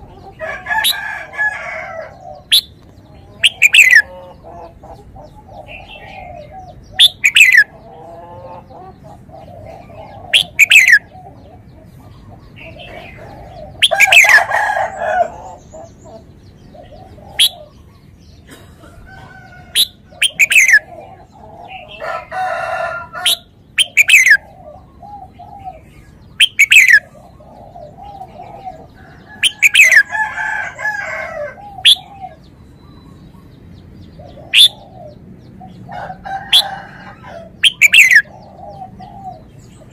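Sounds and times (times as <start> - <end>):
bird sharp whistled calls: 7.0 - 7.7, 10.4 - 11.0, 19.8 - 20.8, 23.3 - 24.4, 26.4 - 27.0, 31.8 - 32.1, 34.5 - 34.8, 37.6 - 38.3.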